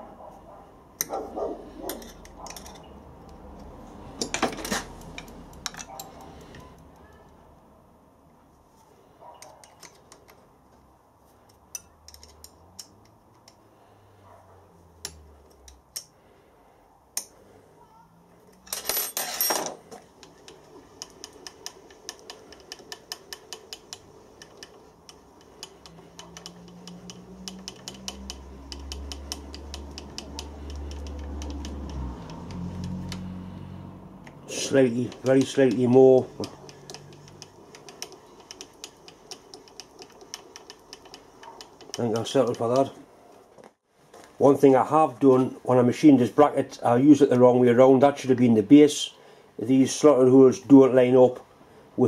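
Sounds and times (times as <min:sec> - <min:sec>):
metallic clicks of hand tools: 0:11.5 - 0:13.6, 0:15.0 - 0:16.2, 0:20.2 - 0:33.3.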